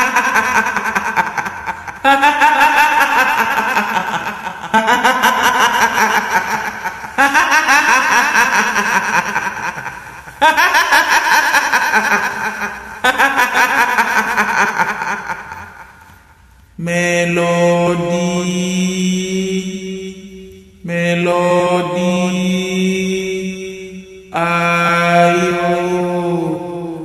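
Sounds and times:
woman cackling: 0.0 - 16.2.

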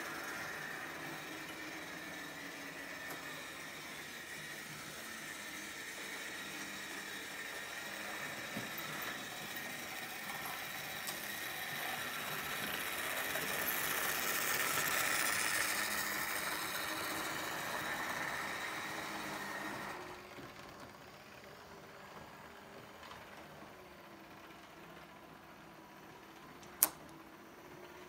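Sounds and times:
model train running on track: 0.0 - 26.4.

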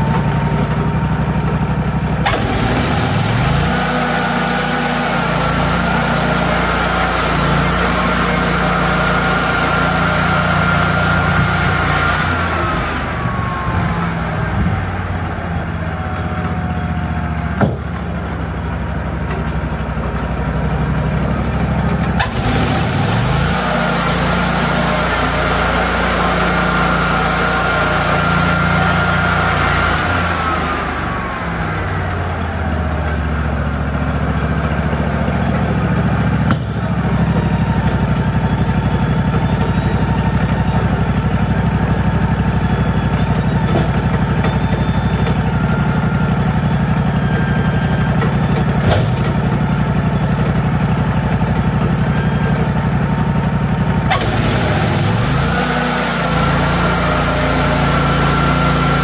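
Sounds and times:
sawmill engines running: 0.0 - 59.0
saw blade cutting wood: 2.2 - 13.7, 22.2 - 31.7, 54.1 - 59.0.

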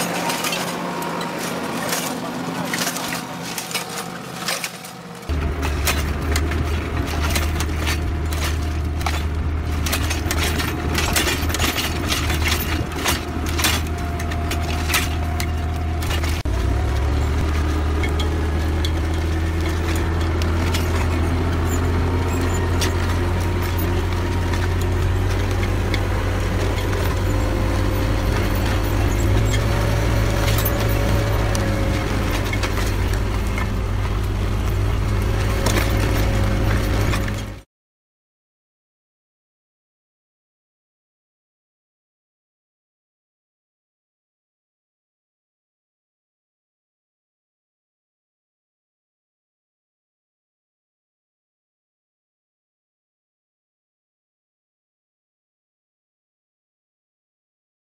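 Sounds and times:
tractor engine running: 0.0 - 37.6.

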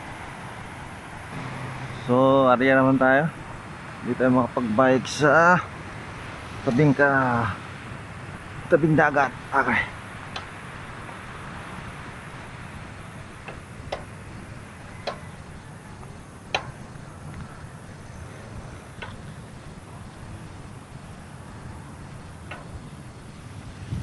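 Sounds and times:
bike clicking and rattling: 8.1 - 24.0.

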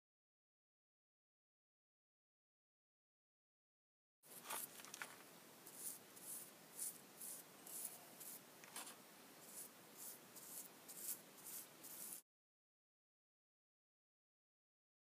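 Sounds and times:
paintbrush swishing on wood: 5.6 - 12.2.

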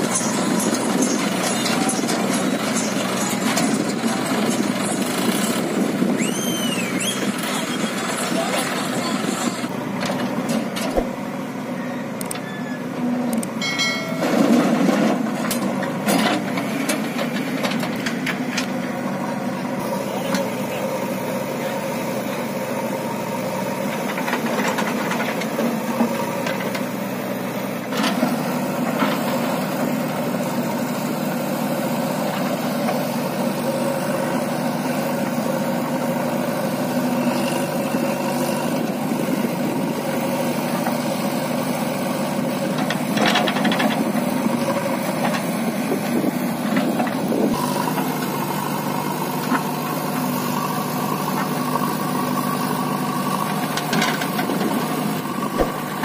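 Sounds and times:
diesel engines running: 0.0 - 56.0
sharp knocks: 55.6 - 56.0.

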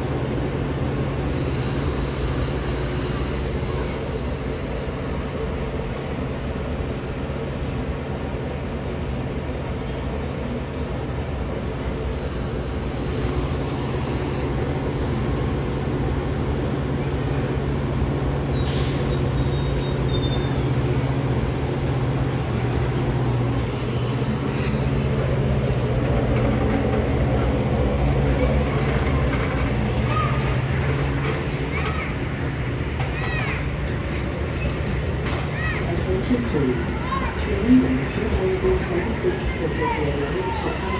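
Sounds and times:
train rolling past: 0.0 - 40.9
wheels rumbling on rail: 0.0 - 40.9
faint high squeal: 18.5 - 20.8.

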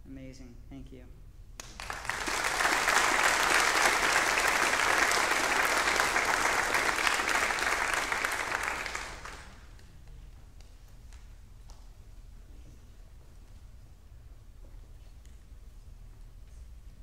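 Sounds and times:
congregation applauding: 1.6 - 10.1.

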